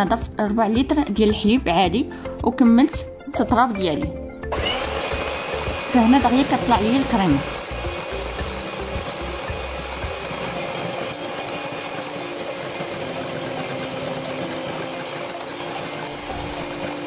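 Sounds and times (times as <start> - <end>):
electric hand mixer whipping: 4.4 - 17.0.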